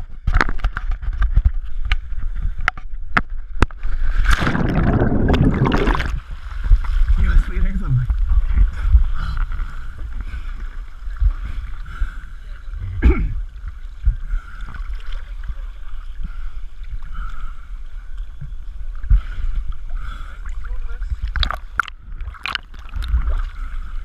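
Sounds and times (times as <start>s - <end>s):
sea water sloshing: 3.7s - 12.8s, 13.4s - 24.0s
water splash: 3.8s - 7.0s, 21.2s - 23.5s.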